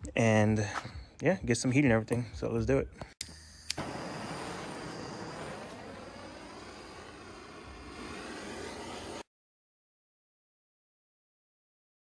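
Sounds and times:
propane torch hissing: 0:03.2 - 0:09.3.

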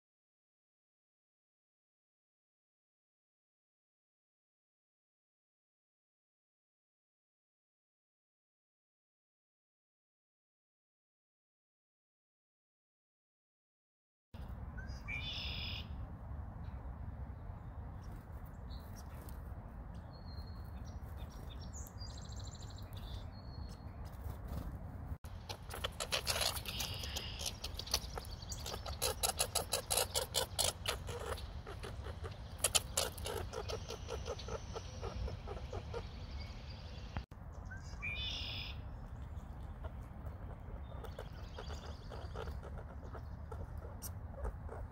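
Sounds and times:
sharp chirping and chattering calls: 0:25.2 - 0:44.9.

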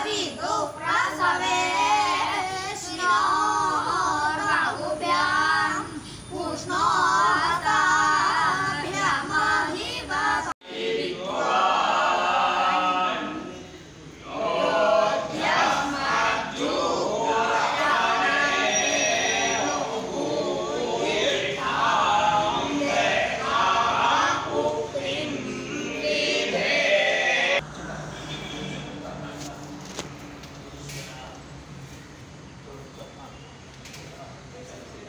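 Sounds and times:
boys singing in unison: 0:00.0 - 0:13.6, 0:14.2 - 0:27.6.

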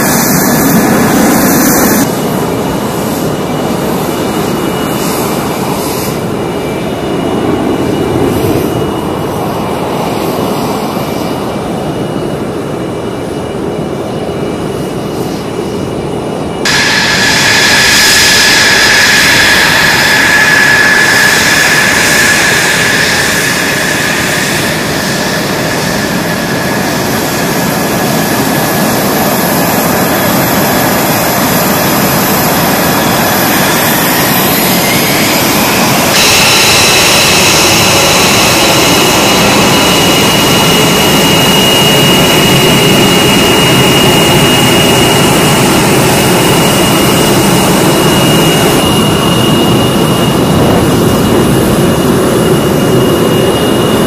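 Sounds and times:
jet engines whining: 0:00.0 - 0:54.0.

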